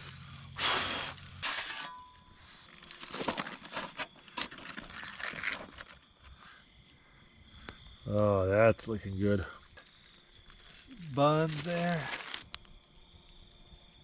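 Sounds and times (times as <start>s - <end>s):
aluminium foil crinkling: 0.0s - 6.3s, 9.6s - 14.0s.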